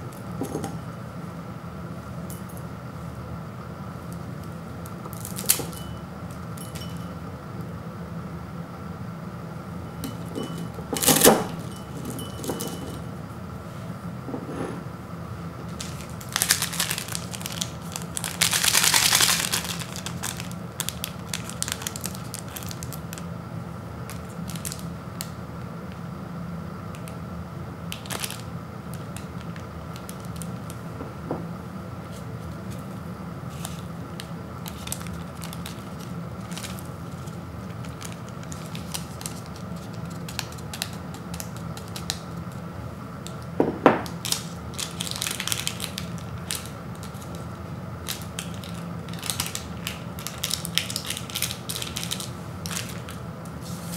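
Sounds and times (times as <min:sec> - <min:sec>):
low steady hum: 0:00.0 - 0:53.9
foil packet crinkling and tearing: 0:15.7 - 0:23.3, 0:24.1 - 0:25.4, 0:27.9 - 0:30.8, 0:33.5 - 0:42.6, 0:44.1 - 0:53.2.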